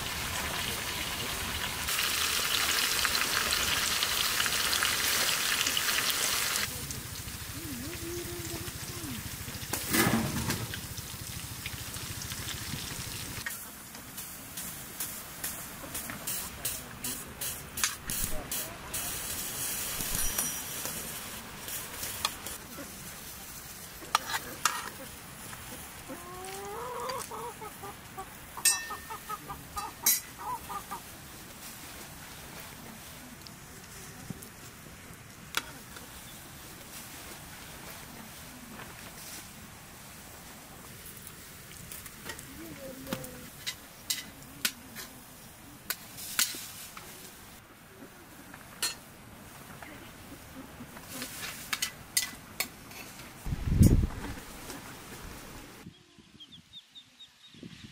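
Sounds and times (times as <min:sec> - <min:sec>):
chicken clucking: 0:24.9 - 0:31.1
metal spoons clinking on plates: 0:28.6 - 0:29.2.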